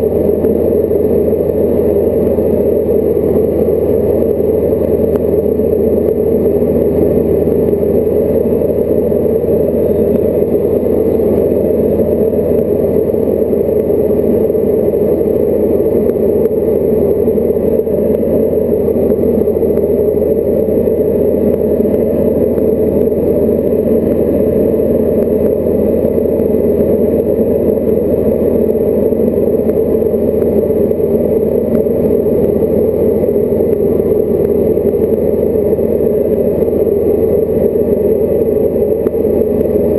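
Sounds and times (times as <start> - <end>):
light aircraft engine droning: 0.0 - 39.9.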